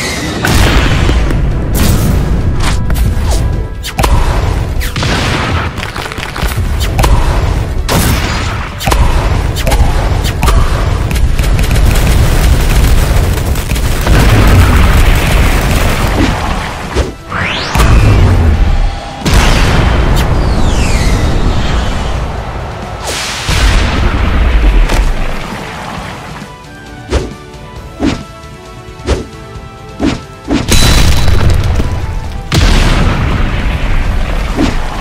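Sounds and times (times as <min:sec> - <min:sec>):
background music: 0:00.0 - 0:35.0
heavy booms and impacts: 0:06.6 - 0:17.0, 0:17.6 - 0:25.6, 0:30.7 - 0:35.0.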